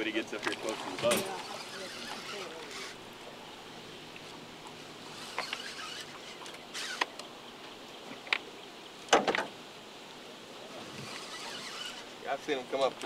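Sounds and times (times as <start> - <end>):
steady background hiss: 0.0 - 13.0
fishing reel clicking and ratcheting: 5.2 - 7.1.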